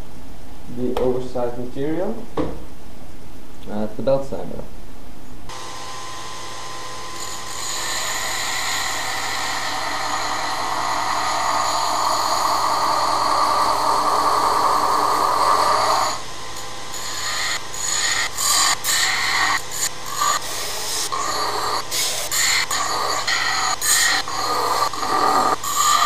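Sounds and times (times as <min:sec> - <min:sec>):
belt sander humming: 0:05.5 - 0:26.0
metal grinding on sander belt: 0:05.6 - 0:26.0.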